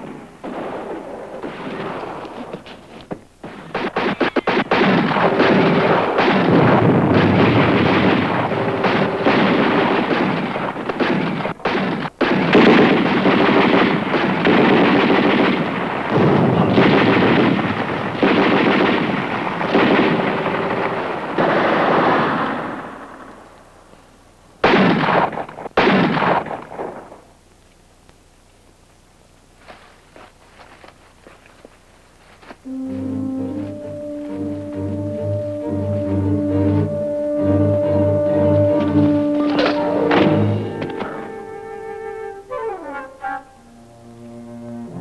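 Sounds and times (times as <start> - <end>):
automatic gunfire bursts: 3.4 - 23.2.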